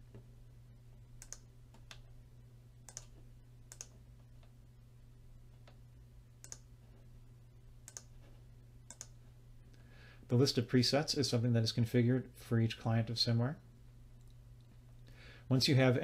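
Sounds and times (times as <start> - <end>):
faint low hum: 0.0 - 16.0
computer mouse clicking: 1.2 - 2.1, 2.9 - 4.0, 6.4 - 6.7, 7.8 - 8.2, 8.9 - 9.2.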